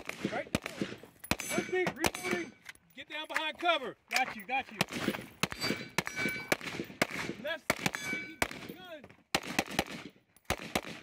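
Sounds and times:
rifle gunshots: 0.0 - 2.6, 4.8 - 11.0
steel target ringing: 1.3 - 2.6, 5.5 - 6.6, 7.9 - 8.6.

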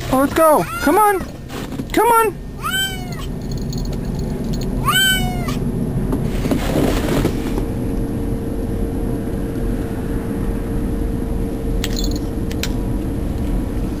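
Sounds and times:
low hum: 0.0 - 14.0
cat meowing: 0.6 - 1.3, 2.6 - 3.3, 4.8 - 5.6.

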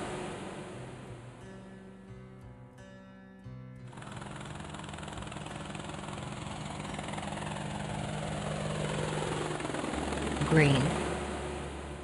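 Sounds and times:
helicopter engine hum: 0.0 - 1.4, 3.9 - 12.0
cartoon helicopter rotor chopping: 3.9 - 12.0.

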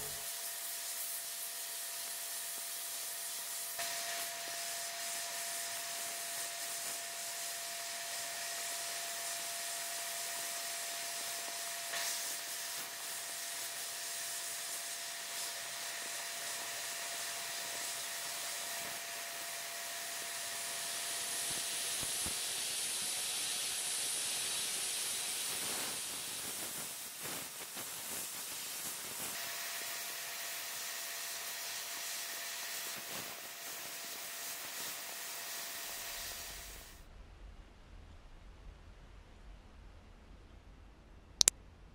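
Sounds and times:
sandblasting gun hissing: 0.0 - 37.0.

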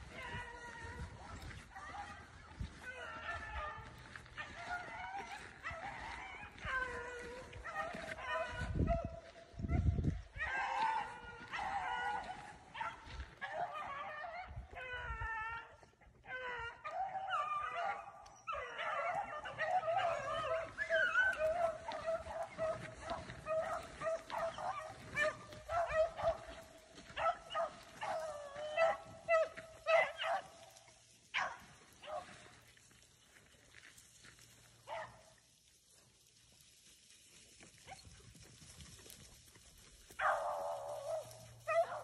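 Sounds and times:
beagles baying: 0.0 - 32.6, 40.0 - 42.0.

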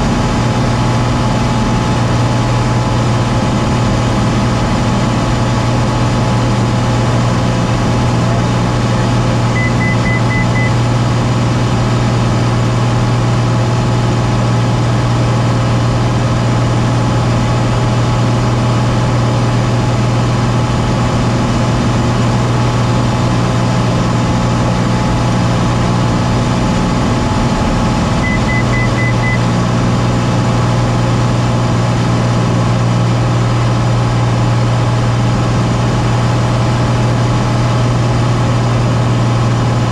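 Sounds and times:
small airplane engine droning: 0.0 - 39.9
high beeps: 9.6 - 10.8, 28.2 - 29.5.

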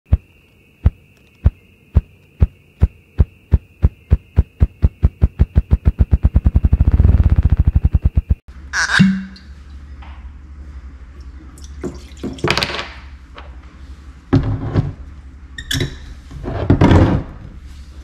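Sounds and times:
grouse wings drumming: 0.1 - 8.4.

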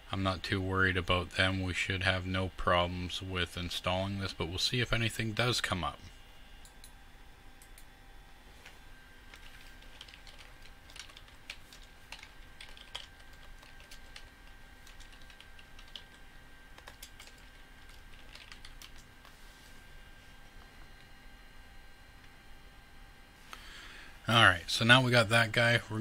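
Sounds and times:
faint electrical whine: 0.0 - 26.0
computer keyboard clicking: 9.3 - 16.2, 16.8 - 19.1.

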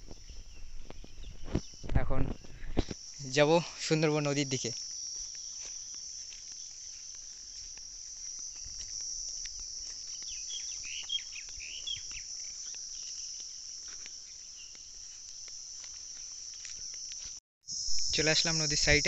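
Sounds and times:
insects calling: 0.0 - 19.0
bird chirps: 10.1 - 13.6.

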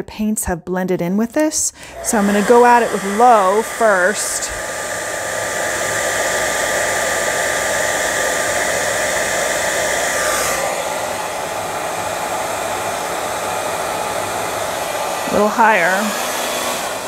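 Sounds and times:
hair dryer blowing: 1.8 - 17.0.

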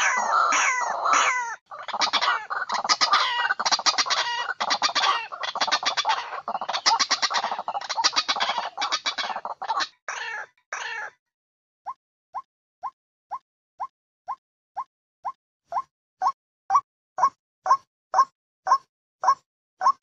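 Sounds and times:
bird harsh clucking calls: 0.0 - 11.1, 15.7 - 20.0.

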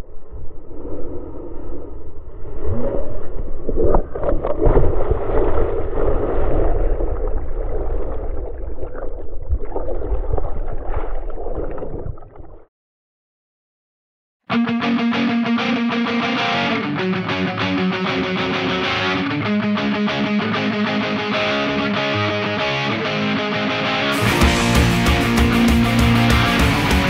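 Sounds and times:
muffled waves breaking: 0.6 - 12.6.

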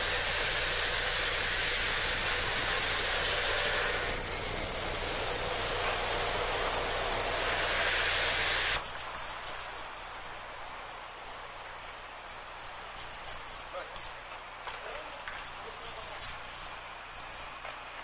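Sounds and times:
electric grinder grinding stone: 0.0 - 8.8.

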